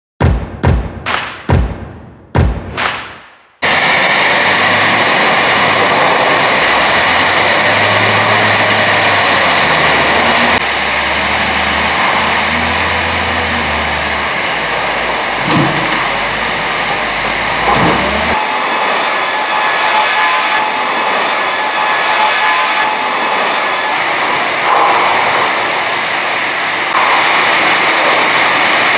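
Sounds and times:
sharp knocks: 0.2 - 3.4
diesel engine running: 3.6 - 24.8
log conveyors running: 3.6 - 28.9.

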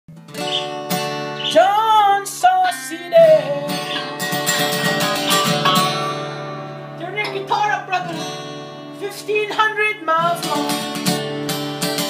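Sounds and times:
acoustic guitar strumming: 0.1 - 12.0
man singing long notes: 1.4 - 4.1, 8.9 - 11.0.

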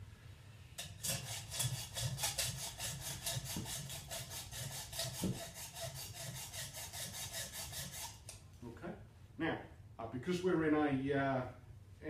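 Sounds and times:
hacksaw cutting metal pipe: 0.8 - 8.4.

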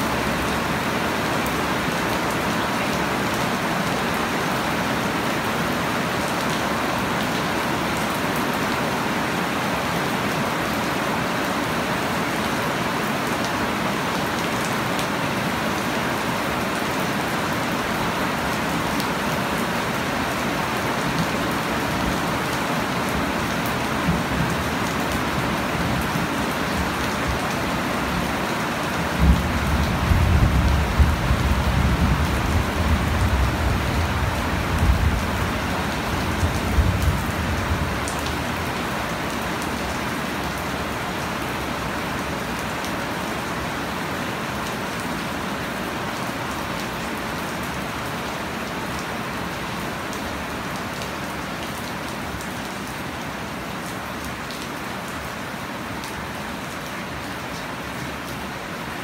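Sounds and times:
heavy rain on plants and soil: 0.0 - 59.0.

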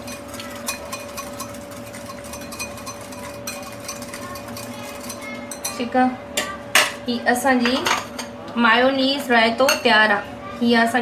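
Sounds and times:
whisk clicking against bowl: 0.0 - 5.8
woman's voice: 5.7 - 6.2, 7.0 - 8.0, 8.6 - 11.0.

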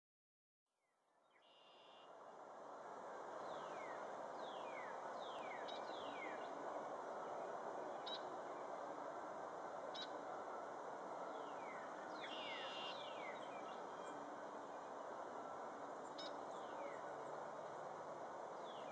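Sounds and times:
steady background rush: 2.1 - 18.9
songbirds whistling: 11.3 - 14.2.

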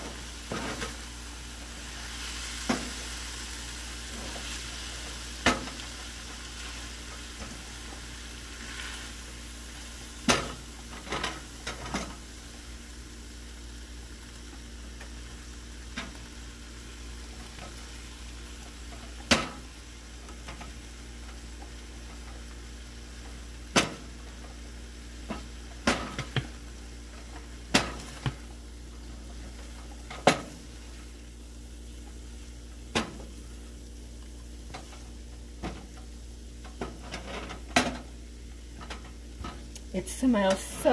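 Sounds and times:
vegetables sizzling in a skillet: 0.0 - 40.9
wooden spoon knocking on pan: 25.3 - 26.6.

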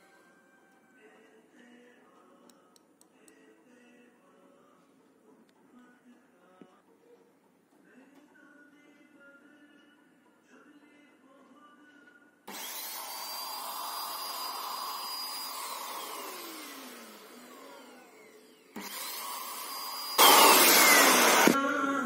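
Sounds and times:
paint sprayer motor whine: 12.5 - 21.6.

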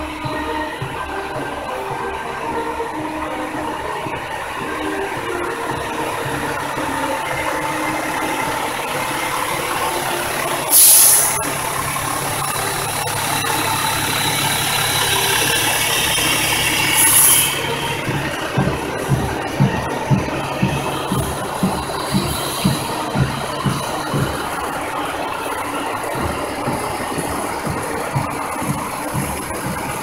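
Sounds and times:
diesel engines running: 0.0 - 30.0
air brake hisses: 10.7 - 11.5, 16.0 - 17.8.

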